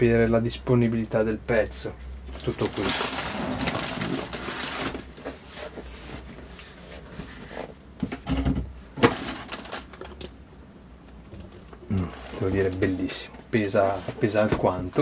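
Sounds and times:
newspaper rustling: 2.3 - 6.3
cardboard box scraping: 2.6 - 6.3.

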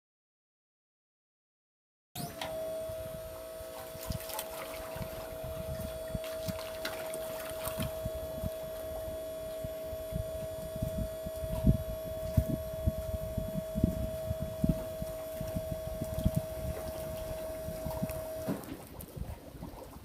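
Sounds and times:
pump motor whining: 2.2 - 18.8
water sloshing: 2.2 - 19.0.

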